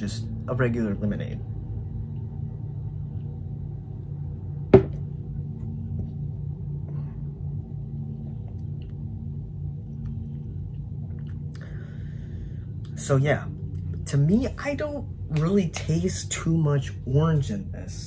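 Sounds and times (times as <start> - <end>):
steady low hum: 0.0 - 18.0
plastic cup knocking on desk: 4.7 - 5.0.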